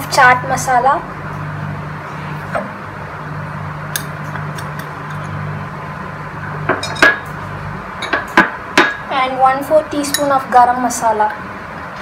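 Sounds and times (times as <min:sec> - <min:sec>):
steady low hum: 0:00.0 - 0:12.0
kitchenware clinking: 0:06.7 - 0:07.2.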